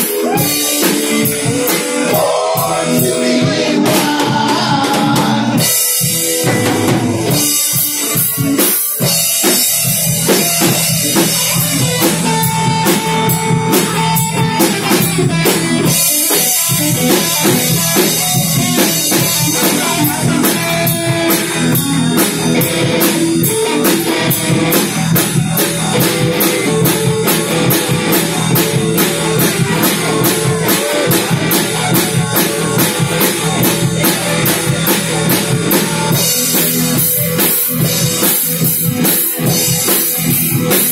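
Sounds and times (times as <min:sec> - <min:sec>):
drum kit steady beat: 0:00.0 - 0:40.9
electric bass: 0:00.0 - 0:40.9
electric guitar: 0:00.0 - 0:40.9.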